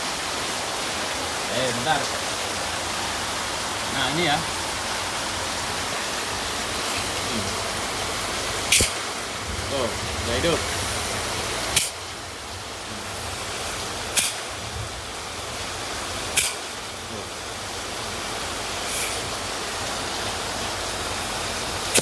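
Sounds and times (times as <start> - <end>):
rain: 0.0 - 22.0
refrigerator compressor hum: 4.2 - 22.0.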